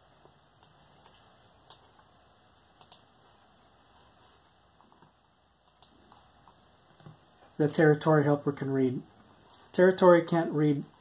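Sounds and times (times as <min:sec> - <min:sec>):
keyboard and mouse clicks: 0:02.8 - 0:03.1, 0:05.0 - 0:07.2.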